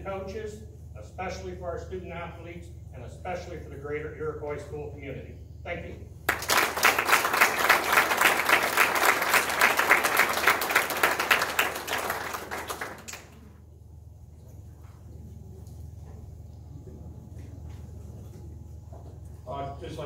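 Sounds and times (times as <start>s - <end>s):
audience applauding: 6.3s - 13.6s.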